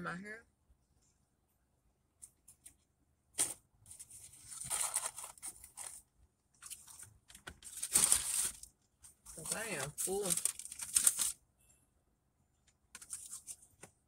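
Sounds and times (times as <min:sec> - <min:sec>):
paper packaging crinkling: 0:03.4 - 0:11.4, 0:13.0 - 0:13.8.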